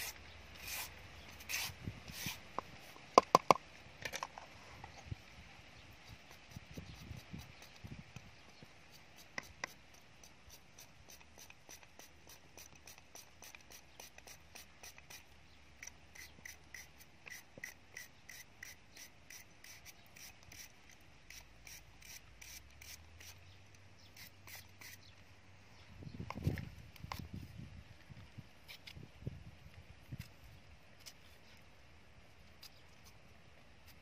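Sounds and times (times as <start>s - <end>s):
peeler scraping carrot: 0.0s - 3.0s, 6.0s - 25.1s, 28.6s - 29.1s, 32.5s - 33.2s.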